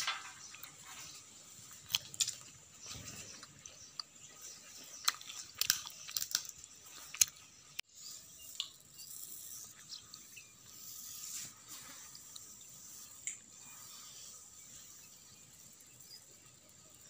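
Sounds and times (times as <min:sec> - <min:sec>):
peanut shells cracking: 0:04.9 - 0:07.5.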